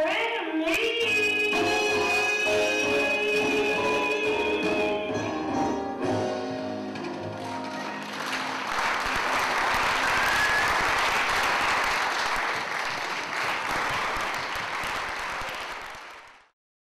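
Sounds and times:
music: 0:00.0 - 0:08.8
audience applauding: 0:07.4 - 0:16.5.

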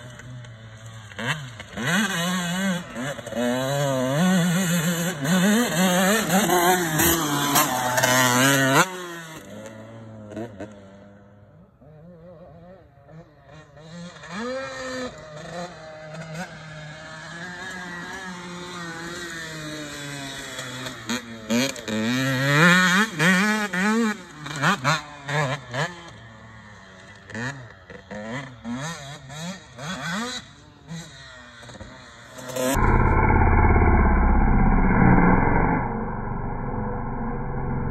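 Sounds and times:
dirt bike engine revving: 0:27.3 - 0:37.9.

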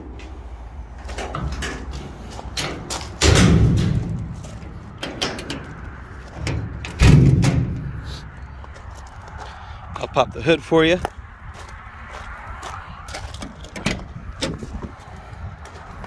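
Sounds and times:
metal doors slamming: 0:01.0 - 0:08.3, 0:13.4 - 0:14.6.

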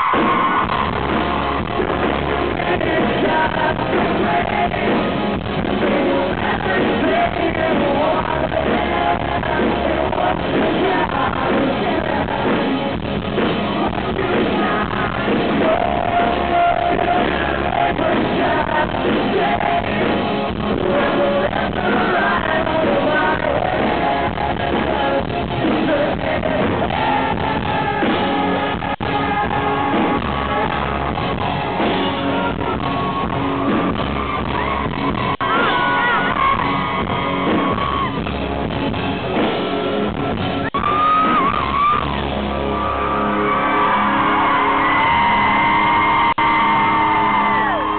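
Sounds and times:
electric guitar: 0:00.0 - 0:47.9
live rock band playing: 0:00.0 - 0:47.9
man singing and yelling: 0:01.9 - 0:13.1, 0:13.7 - 0:38.2.

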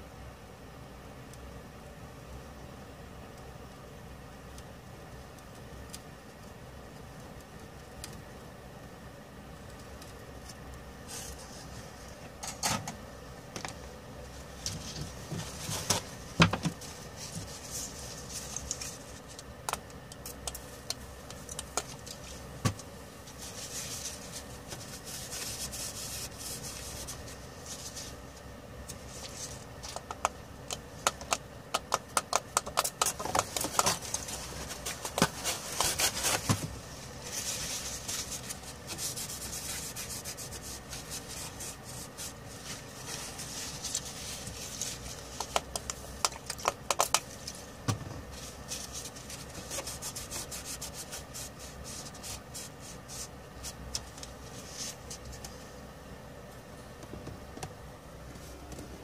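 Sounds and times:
tissue rubbing on circuit board: 0:14.4 - 0:19.3, 0:23.2 - 0:30.0, 0:33.1 - 0:47.7, 0:48.3 - 0:55.4
sharp clicks and ticks: 0:29.9 - 0:33.6.

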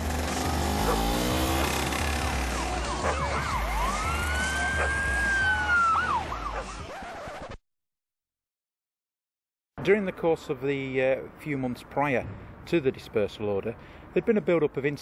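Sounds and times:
police siren wailing: 0:00.6 - 0:06.8.

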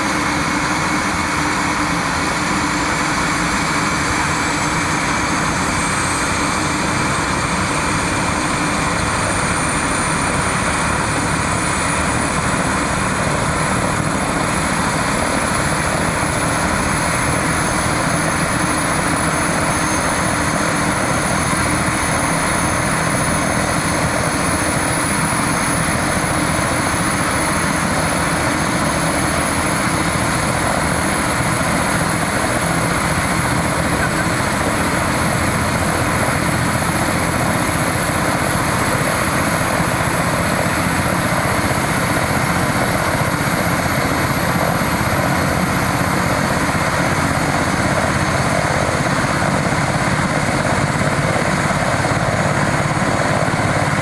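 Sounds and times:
helicopter rotor and engine rush: 0:00.0 - 0:54.0
high turbine whine: 0:00.0 - 0:54.0.

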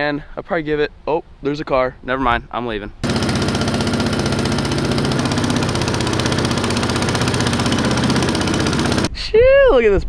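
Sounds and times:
boat motor running: 0:03.0 - 0:09.1.

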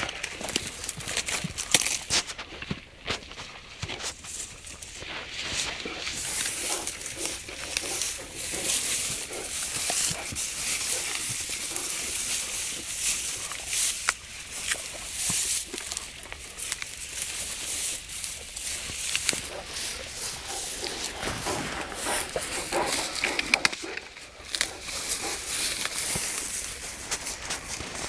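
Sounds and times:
grass rustling and tearing: 0:00.0 - 0:28.0
sharp clicks: 0:22.8 - 0:24.7.

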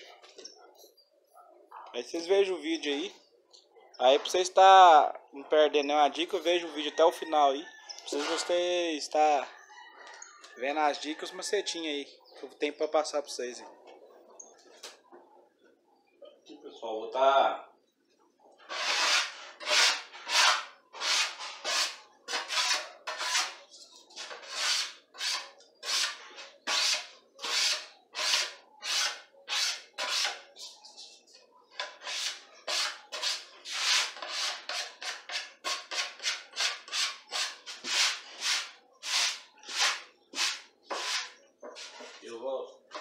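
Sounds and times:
sandpaper scratching on wood: 0:18.7 - 0:23.6, 0:24.2 - 0:30.8, 0:32.0 - 0:42.2.

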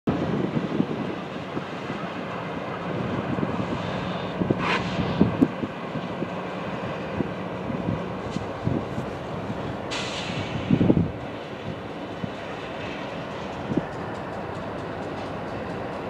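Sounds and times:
diesel locomotive engine rumble: 0:00.1 - 0:16.0
train clanks: 0:07.2 - 0:16.0
brief hiss: 0:09.9 - 0:10.8.

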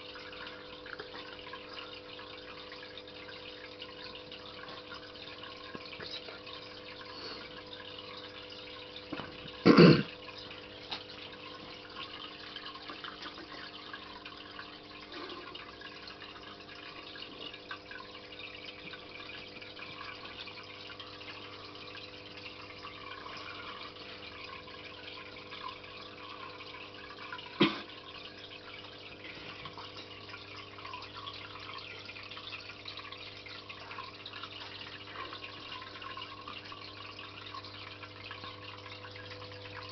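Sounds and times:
air bubbles popping in water: 0:08.4 - 0:10.3, 0:27.4 - 0:28.4.

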